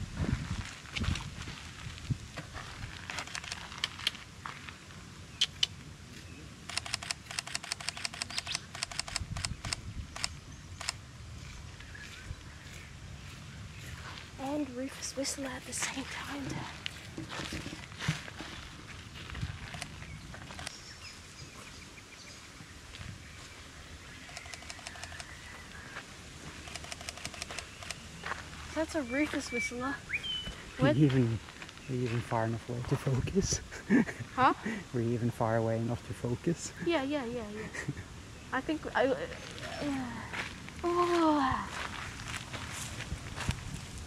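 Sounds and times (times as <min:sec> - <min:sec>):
birds calling: 0:05.2 - 0:18.0, 0:19.7 - 0:34.9
camera shutter clicks: 0:06.7 - 0:11.0, 0:24.3 - 0:25.3.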